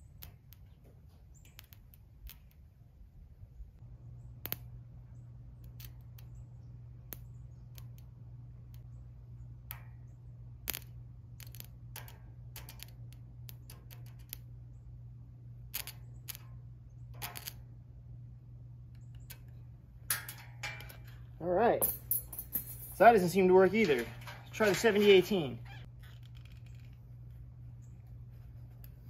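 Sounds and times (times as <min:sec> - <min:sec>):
sharp clicks and crackles: 0:00.0 - 0:02.8, 0:04.2 - 0:17.8, 0:18.8 - 0:29.0
steady low hum: 0:00.0 - 0:29.0
metal rod tapping and scratching steel: 0:20.1 - 0:25.6.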